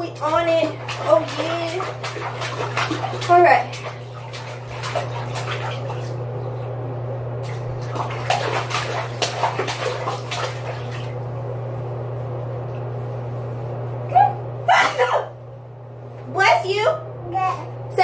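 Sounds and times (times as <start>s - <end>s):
toddler splashing bathwater: 0.0s - 6.6s, 7.4s - 11.2s
steady low hum: 0.0s - 18.0s.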